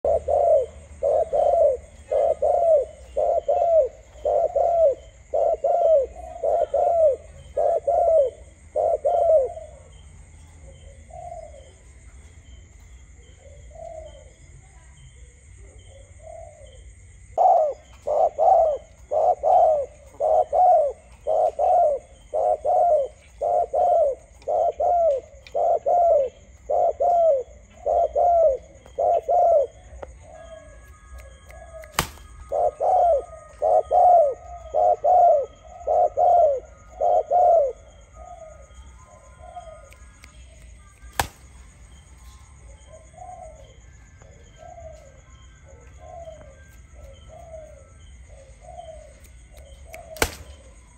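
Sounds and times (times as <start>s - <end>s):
dove cooing: 0.0s - 10.0s, 10.7s - 11.8s, 15.6s - 50.9s.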